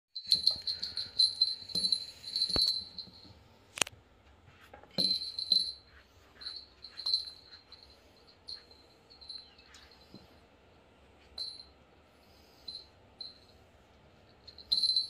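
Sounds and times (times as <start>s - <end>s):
small bell jingling: 0.2s - 3.5s, 4.9s - 10.4s, 11.3s - 11.8s, 12.6s - 13.6s, 14.2s - 15.0s.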